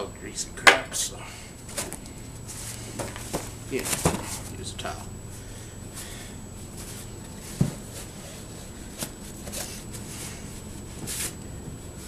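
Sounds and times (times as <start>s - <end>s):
low hum: 0.0s - 12.0s
handling noise: 1.6s - 4.7s.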